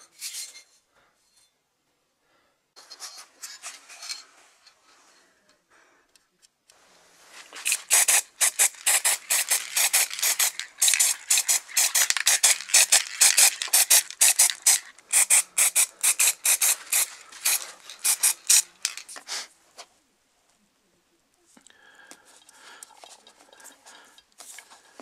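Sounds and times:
spray paint can hissing: 7.6 - 19.2.

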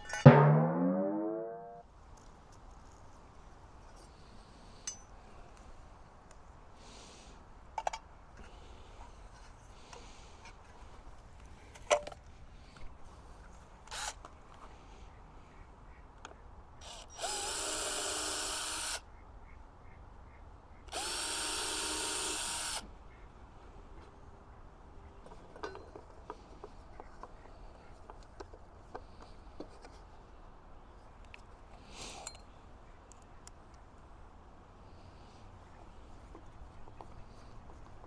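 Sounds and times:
power drill whining: 16.8 - 19.0, 20.9 - 22.8.

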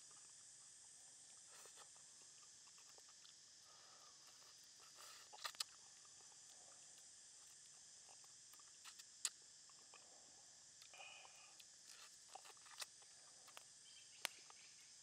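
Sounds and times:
crunching of fried bone: 5.0 - 5.8, 11.8 - 13.7.

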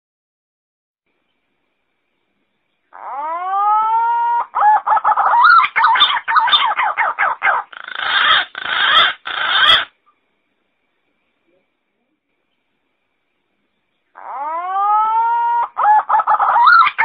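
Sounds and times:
harsh grating bird notes: 3.0 - 10.0.

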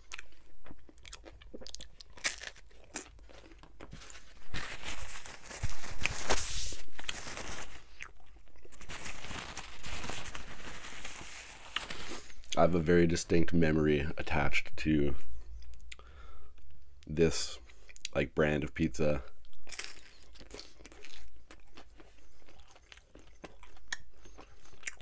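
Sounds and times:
close chewing and crunching: 0.0 - 6.2, 6.8 - 12.6, 19.4 - 25.0
paper napkin crinkling: 3.8 - 7.9, 8.7 - 12.5.

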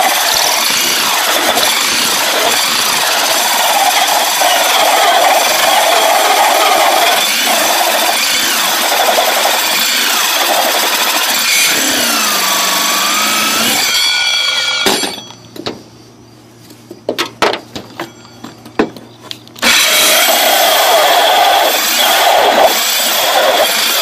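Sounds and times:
electric drill cutting wood: 0.0 - 15.1, 19.6 - 24.0.

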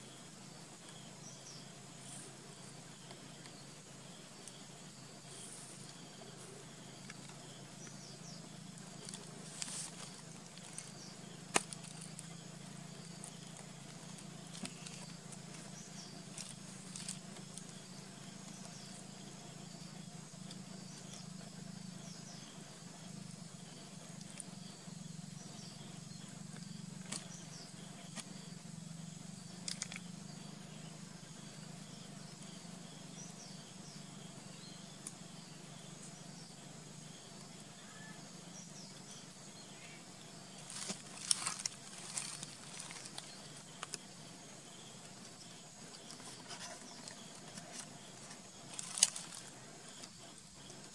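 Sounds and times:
steady low hum: 0.0 - 50.9
pebbles clicking on rocky ground: 9.0 - 12.3, 40.6 - 44.0, 48.6 - 49.5.

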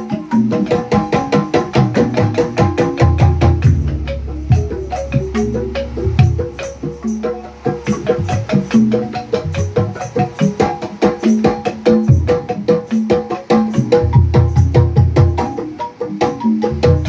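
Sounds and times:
bamboo tubes struck with mallets: 0.5 - 17.0
deep low bamboo strokes: 3.2 - 7.1.

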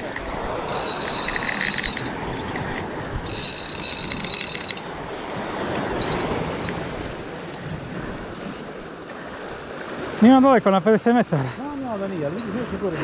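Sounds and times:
sea noise: 0.0 - 13.0
wind: 0.0 - 13.0
fishing reel clicking: 0.6 - 4.9, 5.7 - 6.8.

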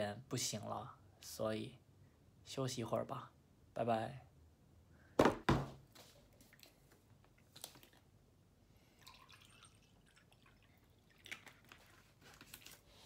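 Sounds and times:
water trickling into a glass: 8.9 - 11.8.

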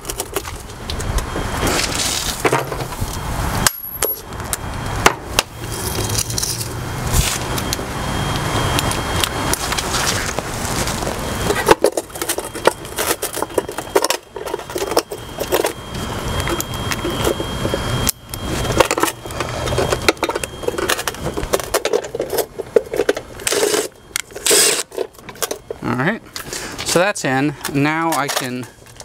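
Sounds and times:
metal clicks and scraping: 5.4 - 7.8, 11.4 - 25.8, 27.6 - 29.0.

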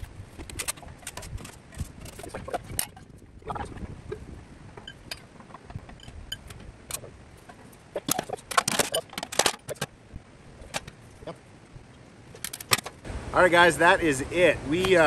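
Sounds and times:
steel parts clinking: 0.0 - 3.6, 4.8 - 10.0, 12.3 - 13.0.

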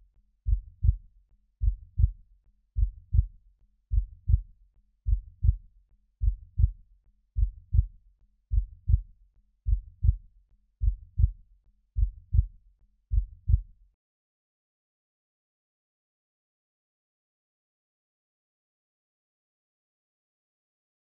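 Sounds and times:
heartbeat thumps: 0.5 - 1.0, 1.6 - 2.2, 2.8 - 3.3, 3.9 - 4.4, 5.1 - 5.6, 6.2 - 6.8, 7.4 - 7.9, 8.5 - 9.0, 9.7 - 10.2, 10.8 - 11.4, 12.0 - 12.5, 13.1 - 13.6.

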